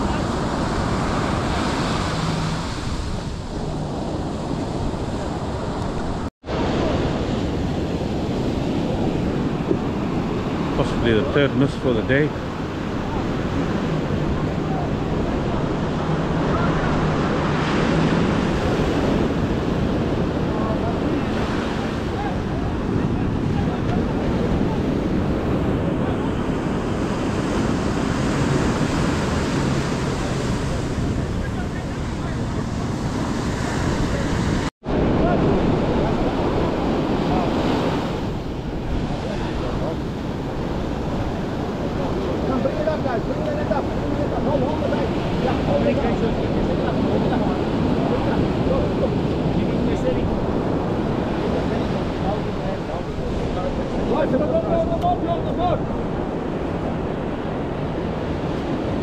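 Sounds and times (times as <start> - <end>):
waves washing onto beach: 0.0 - 59.0
wind on microphone: 0.0 - 59.0.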